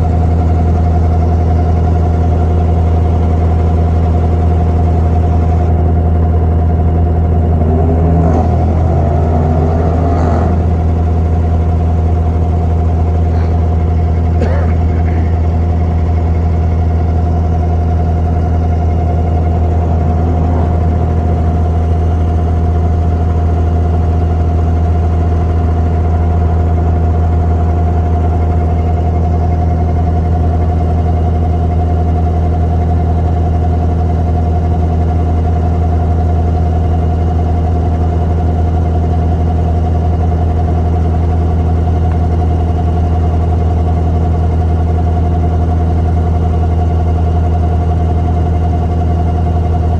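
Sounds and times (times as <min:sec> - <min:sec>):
boat diesel engine running: 0:00.0 - 0:49.9.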